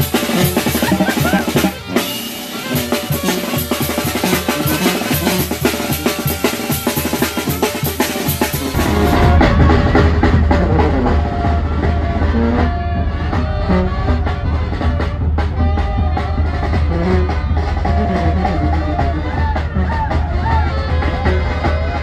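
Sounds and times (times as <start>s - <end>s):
bass drum with cymbals: 0.0s - 22.0s
brass and saxophone melody: 0.0s - 22.0s
tuba bass line: 0.0s - 22.0s.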